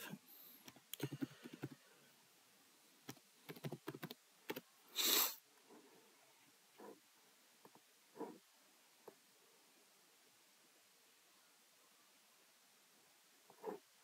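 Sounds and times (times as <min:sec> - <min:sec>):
keyboard keys clicking: 0:03.1 - 0:04.6
brief hiss: 0:04.9 - 0:05.4.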